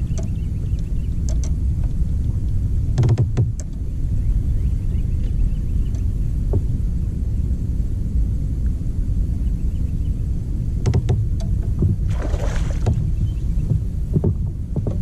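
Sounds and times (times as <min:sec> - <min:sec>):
light clicks: 0:00.0 - 0:03.8
kayak low rumble: 0:00.0 - 0:15.0
gear knocks and thump: 0:01.3 - 0:03.8, 0:10.8 - 0:12.1, 0:12.7 - 0:15.0.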